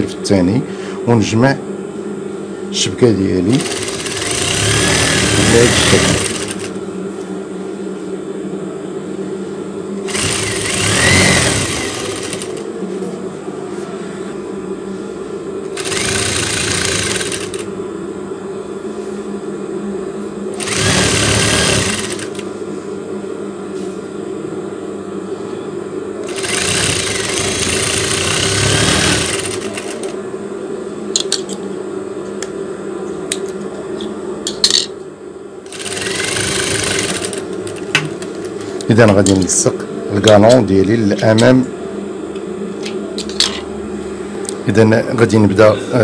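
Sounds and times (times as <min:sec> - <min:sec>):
motor hum: 0:03.3 - 0:07.7, 0:09.7 - 0:13.6, 0:14.4 - 0:18.6, 0:19.8 - 0:23.3, 0:26.2 - 0:31.4, 0:35.6 - 0:44.8
sewing machine stitching: 0:03.6 - 0:06.8, 0:10.0 - 0:12.6, 0:15.8 - 0:17.7, 0:20.6 - 0:22.4, 0:26.3 - 0:30.1, 0:35.7 - 0:37.6.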